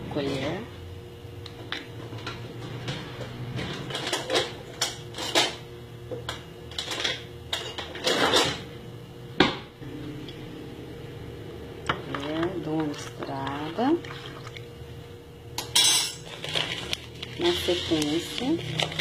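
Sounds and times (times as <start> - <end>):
steady low hum: 0.0 - 19.0
spoon and dishes clinking: 15.6 - 16.2.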